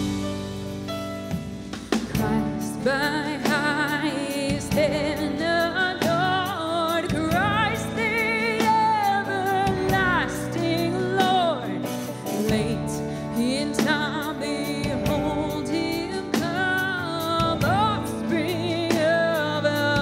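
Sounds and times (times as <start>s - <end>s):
worship band playing: 0.0s - 20.0s
woman singing with vibrato: 2.1s - 20.0s.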